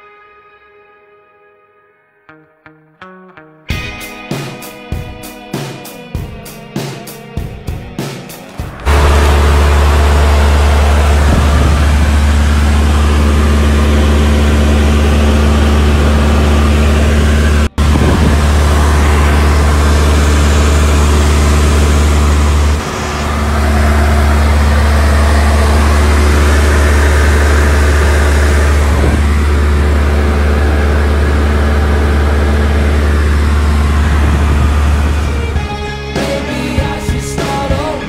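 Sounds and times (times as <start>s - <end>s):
engine drone in cabin: 8.4s - 36.1s.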